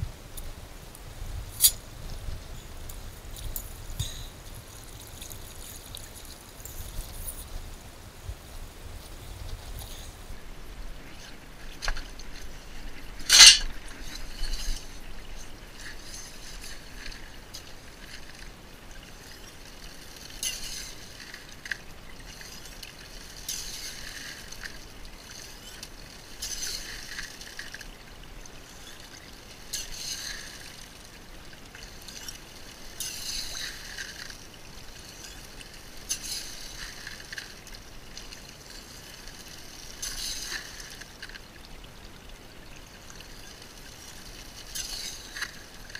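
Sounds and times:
water gurgling through a metal sluice: 9.6s - 45.9s.

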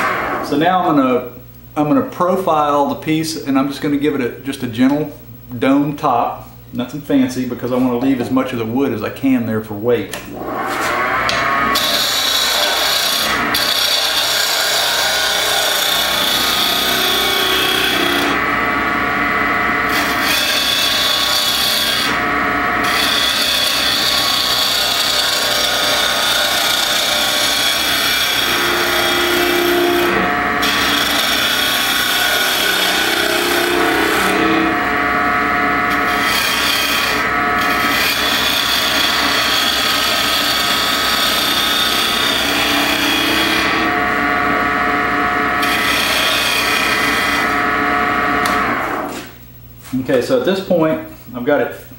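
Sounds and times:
lathe humming: 10.1s - 49.4s
gouge scraping wood: 22.9s - 34.8s.

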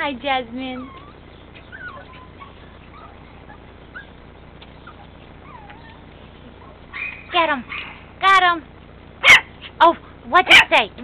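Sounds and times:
puppies whimpering: 0.5s - 8.1s.

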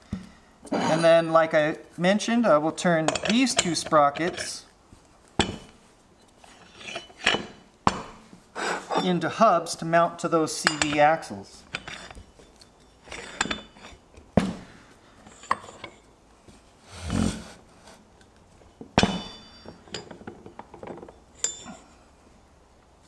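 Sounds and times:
metal parts clinking on a shaft: 11.7s - 14.0s, 19.0s - 22.0s
sharp ringing metallic knocks: 19.0s - 19.9s.

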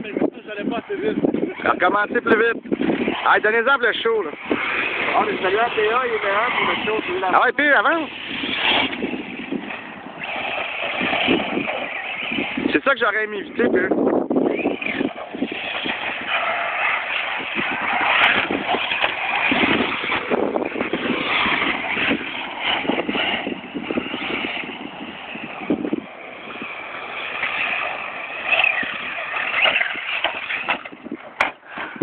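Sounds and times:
rc car motor whine: 0.0s - 32.0s
tyres on gravel: 0.0s - 32.0s.

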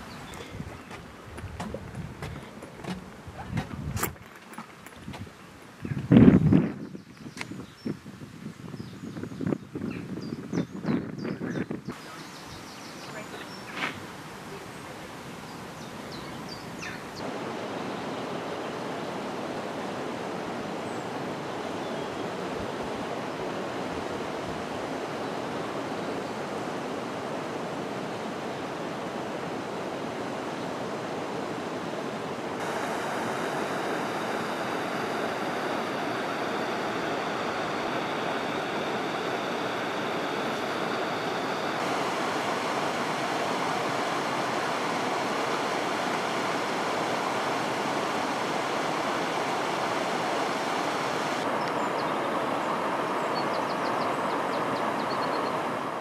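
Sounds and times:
river water rushing through weir: 11.9s - 56.0s.

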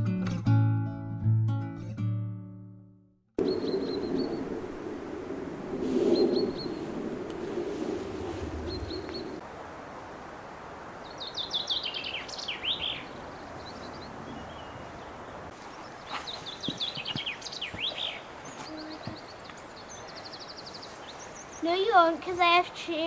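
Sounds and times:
small songbird singing: 3.4s - 4.5s, 6.2s - 6.9s, 8.5s - 9.4s, 11.0s - 22.1s.

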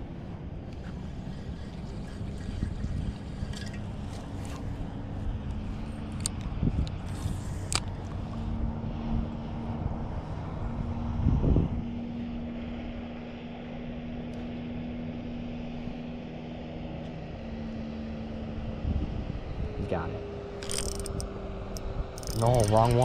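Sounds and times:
distant motor engine drone: 0.0s - 23.0s
mechanical clicks: 20.6s - 21.3s, 22.2s - 23.0s.

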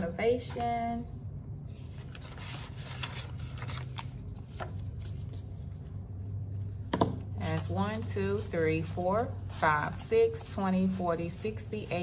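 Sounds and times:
low steady hum: 0.0s - 12.0s
paper and plastic rustling: 1.8s - 5.8s.

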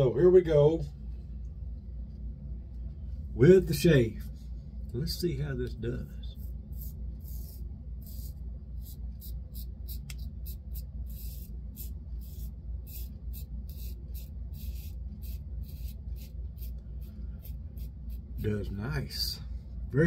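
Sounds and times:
razor scraping stubble: 6.4s - 18.8s.

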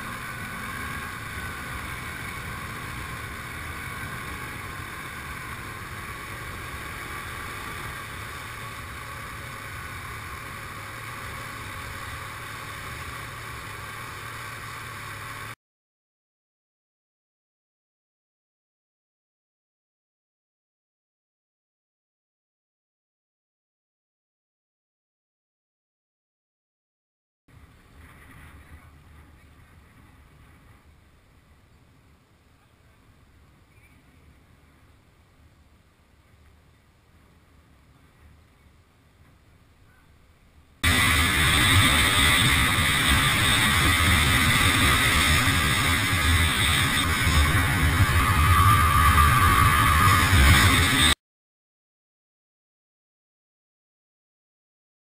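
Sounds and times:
quad engine running: 0.0s - 15.6s, 40.8s - 51.2s.

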